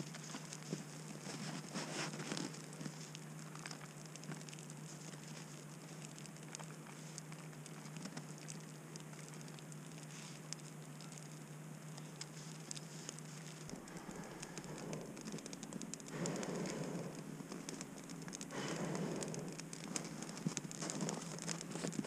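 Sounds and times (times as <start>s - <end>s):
campfire crackling and popping: 0.0s - 22.0s
steady low hum: 0.0s - 22.0s.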